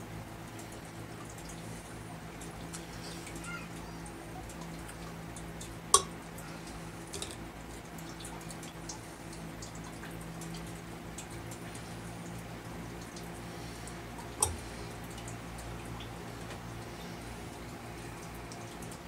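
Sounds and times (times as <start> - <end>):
steady hum: 0.0 - 19.0
plastic pipe fittings clicking: 5.9 - 6.1, 7.1 - 7.4, 14.4 - 14.6.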